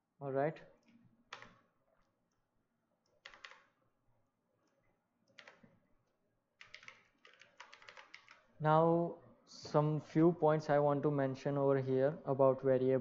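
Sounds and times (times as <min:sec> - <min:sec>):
keyboard and mouse clicking: 0:00.8 - 0:01.7, 0:03.0 - 0:03.8, 0:04.7 - 0:05.7, 0:06.6 - 0:08.5.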